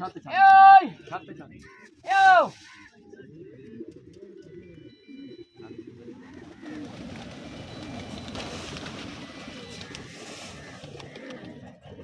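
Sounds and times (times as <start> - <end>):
pigeons cooing: 2.6 - 12.0
rush of many wings: 6.3 - 11.7.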